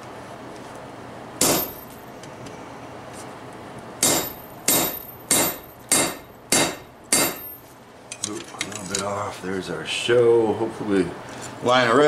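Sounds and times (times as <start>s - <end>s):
hammer striking hot metal: 1.4s - 2.0s, 4.0s - 7.6s.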